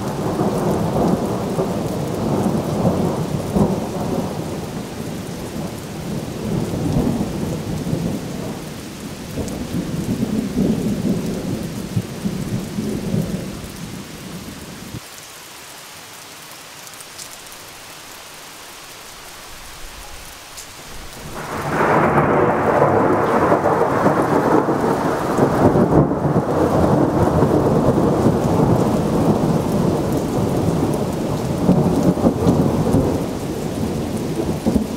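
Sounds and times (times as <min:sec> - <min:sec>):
thunder rumbling: 0:00.0 - 0:15.0, 0:19.7 - 0:34.9
rain falling: 0:00.0 - 0:34.9
loud thunderclap: 0:21.0 - 0:34.9.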